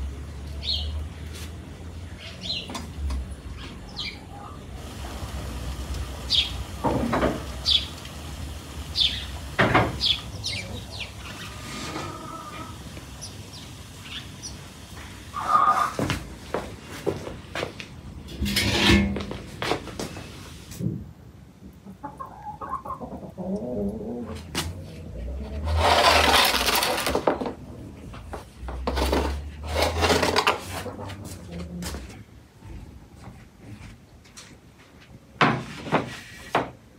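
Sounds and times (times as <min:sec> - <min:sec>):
birds chirping: 0:00.6 - 0:01.0, 0:02.1 - 0:02.8, 0:03.4 - 0:04.8, 0:06.2 - 0:08.1, 0:08.8 - 0:16.0
metal pan scraping on stone: 0:18.3 - 0:19.3, 0:25.5 - 0:27.4, 0:28.9 - 0:31.0.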